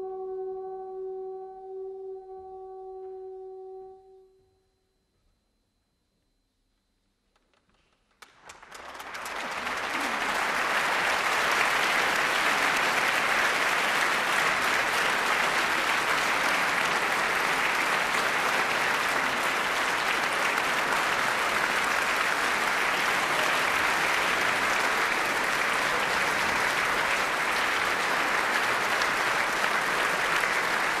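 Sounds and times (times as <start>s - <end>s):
audience applauding: 8.1s - 31.0s.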